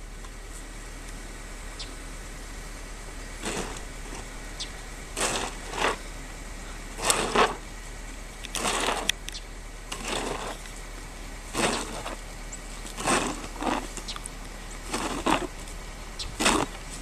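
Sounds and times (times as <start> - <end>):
snow shovel scraping snow: 3.4 - 4.4, 5.0 - 7.7, 8.6 - 9.2, 9.9 - 10.7, 11.4 - 17.0.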